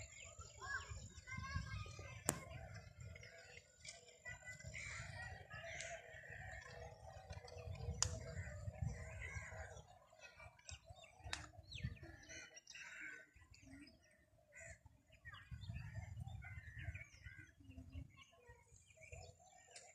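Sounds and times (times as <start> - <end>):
birds chirping: 0.0 - 19.9
wind rumble on microphone: 0.7 - 3.4, 4.3 - 9.8, 11.2 - 12.2, 15.2 - 18.2.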